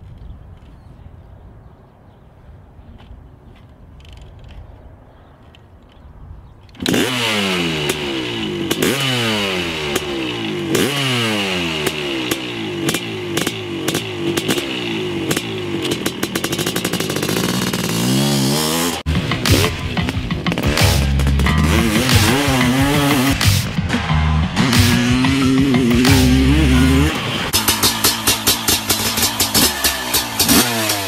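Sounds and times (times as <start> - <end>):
two-stroke engine revving: 6.8 - 31.0.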